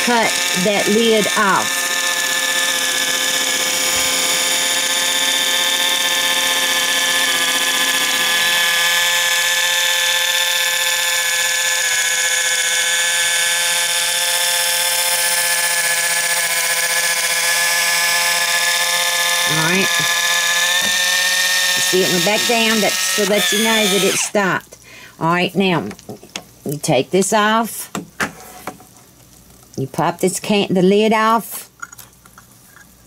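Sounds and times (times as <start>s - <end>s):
electric can opener motor whining: 0.0s - 24.6s.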